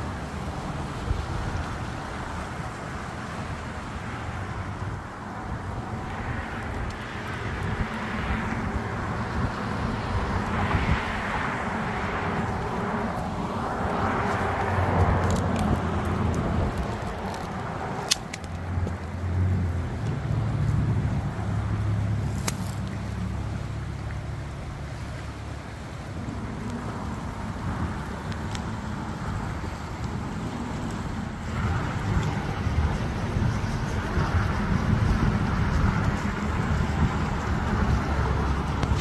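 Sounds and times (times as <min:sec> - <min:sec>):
road noise rush: 0:00.0 - 0:39.0
vehicle engine hum: 0:00.0 - 0:39.0
sharp clicks: 0:15.2 - 0:18.6.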